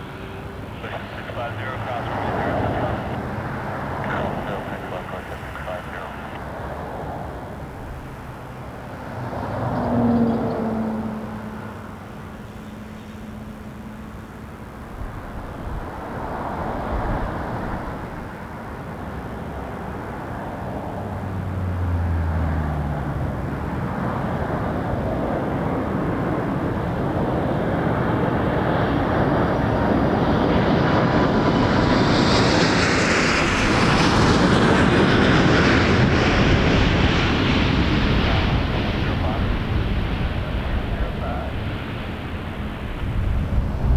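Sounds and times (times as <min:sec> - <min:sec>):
high engine whine: 0:00.0 - 0:43.9
jet engine rumble: 0:00.0 - 0:43.9.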